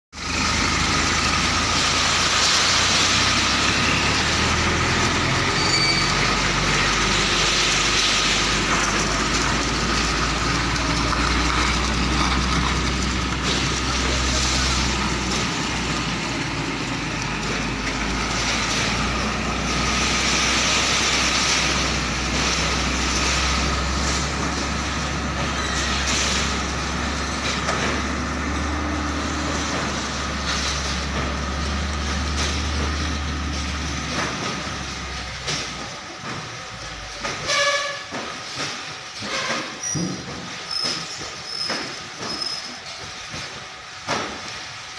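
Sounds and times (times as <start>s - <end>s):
diesel truck engine droning: 0.2s - 37.3s.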